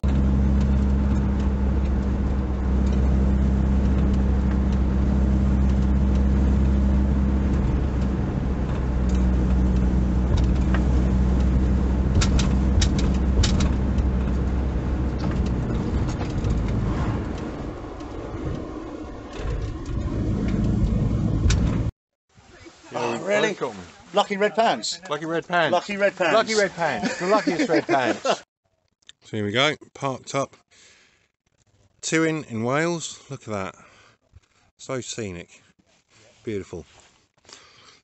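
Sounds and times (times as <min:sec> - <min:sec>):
van engine drone: 0:00.0 - 0:21.9
road noise: 0:00.0 - 0:28.4.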